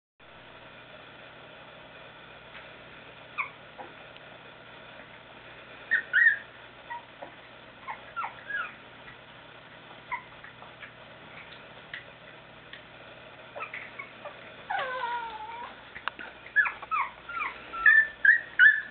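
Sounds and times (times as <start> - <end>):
puppies whimpering: 3.4 - 4.0, 5.9 - 9.2, 10.0 - 11.0, 13.5 - 18.9.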